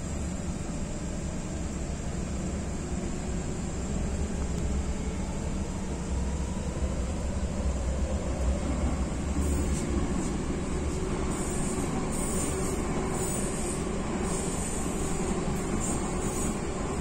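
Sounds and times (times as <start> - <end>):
train wheels rumbling on rail: 0.0 - 17.0.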